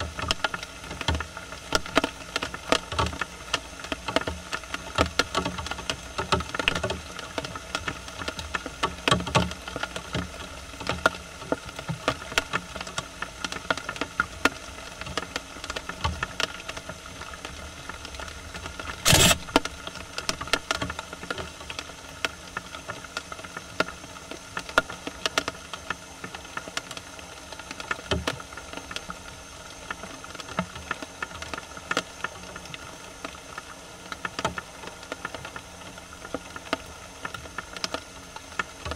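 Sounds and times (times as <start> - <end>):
steady hiss: 0.0 - 38.9.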